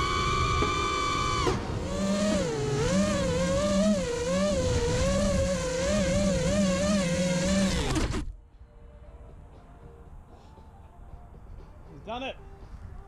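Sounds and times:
quadcopter motors whining: 0.0s - 8.3s.

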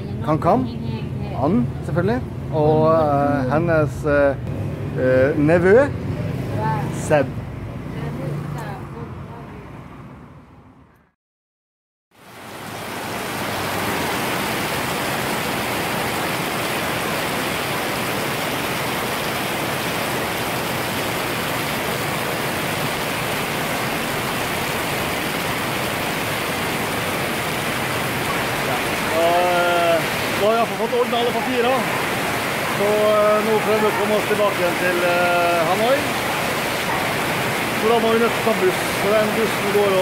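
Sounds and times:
heavy rain pouring: 12.2s - 40.0s.

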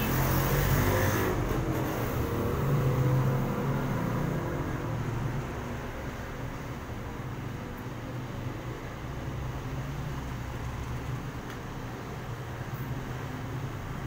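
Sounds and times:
vehicle engine driving past: 0.0s - 5.5s
street traffic: 0.0s - 14.0s.

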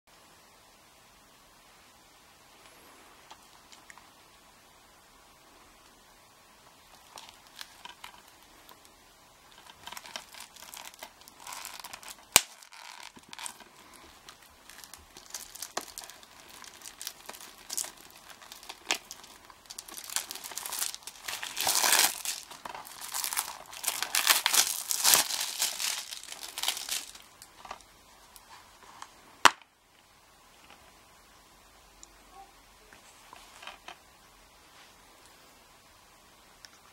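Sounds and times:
plastic wrap crinkling and tearing: 6.9s - 28.5s.

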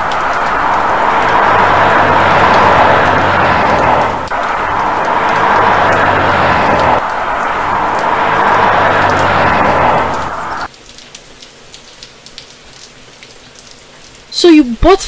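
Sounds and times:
car engine and tyre hum: 0.0s - 10.7s
heavy rain: 0.0s - 15.0s
drip ticks: 10.7s - 14.2s.

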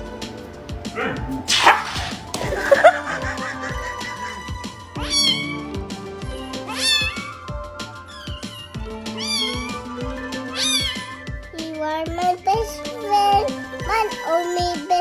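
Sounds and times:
background music: 0.0s - 15.0s
kitten meowing: 5.0s - 5.7s, 6.5s - 9.8s, 10.4s - 11.2s.

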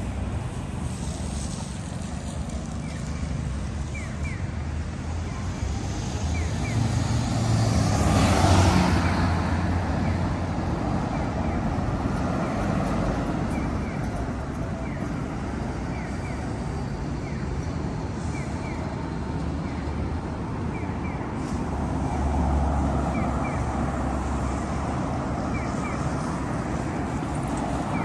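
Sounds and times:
vehicle passing close: 6.0s - 14.6s.

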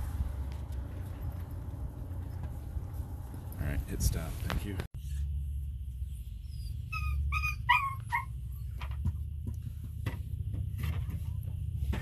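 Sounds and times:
steady low hum: 0.0s - 12.0s
animal whining calls: 6.4s - 8.7s.

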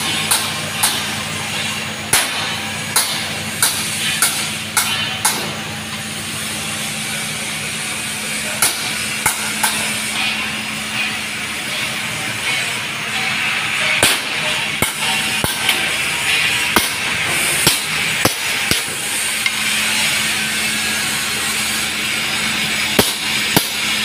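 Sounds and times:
machine hum with hiss: 0.0s - 24.0s
sharp metal knocks: 2.1s - 5.6s.

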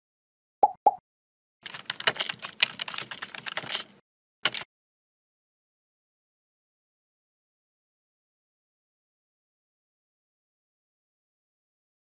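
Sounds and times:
keyboard typing clicks: 1.6s - 4.7s.

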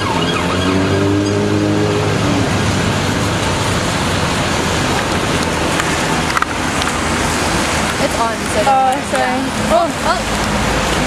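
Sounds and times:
emergency vehicle siren wailing: 0.0s - 6.4s
low engine hum: 0.0s - 11.0s
traffic noise: 0.0s - 11.0s.

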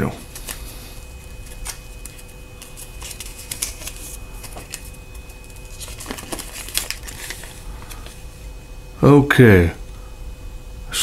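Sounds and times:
paper rustling and crinkling: 0.0s - 8.4s.

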